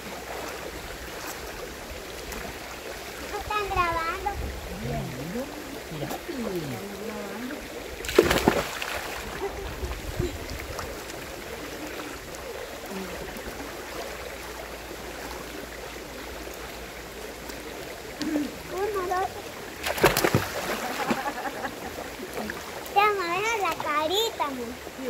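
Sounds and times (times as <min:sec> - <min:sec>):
stream flowing: 0:00.0 - 0:25.0
splash into water: 0:08.0 - 0:12.1, 0:19.8 - 0:22.8.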